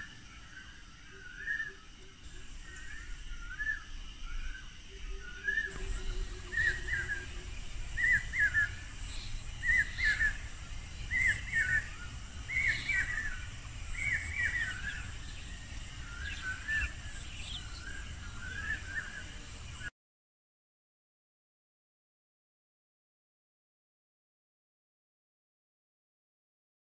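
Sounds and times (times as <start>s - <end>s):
low rumble: 2.2s - 19.8s
bird warbled call: 2.4s - 19.4s.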